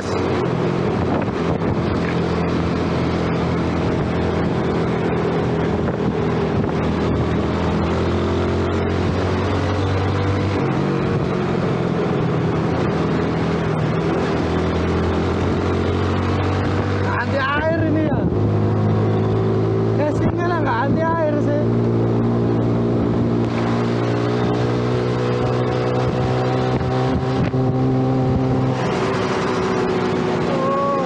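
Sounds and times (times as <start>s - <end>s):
wind noise on microphone: 0.0s - 9.4s, 16.4s - 20.5s, 21.9s - 30.4s
motorcycle engine cruising: 0.0s - 31.0s.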